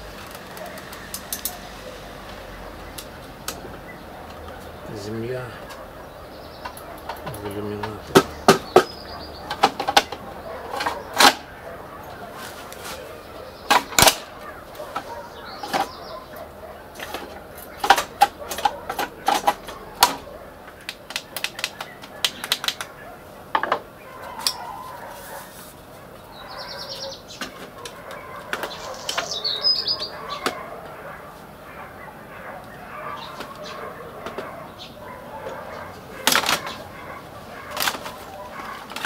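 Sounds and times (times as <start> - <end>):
plastic and metal casing clicks and knocks: 6.6 - 11.5, 13.7 - 16.0, 16.9 - 24.7, 27.3 - 29.3, 33.3 - 34.6, 36.2 - 36.9, 37.6 - 39.0.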